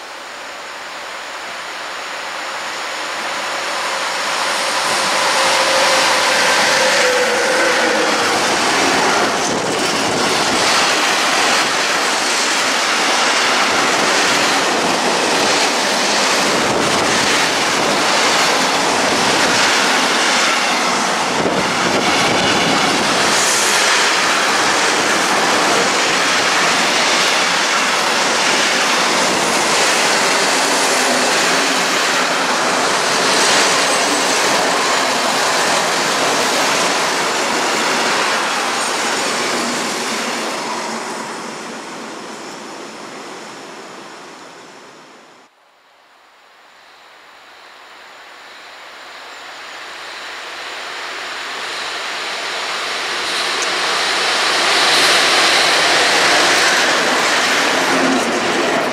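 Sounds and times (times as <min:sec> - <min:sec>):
freight train wheels clattering: 0:03.4 - 0:41.2, 0:52.9 - 0:58.9.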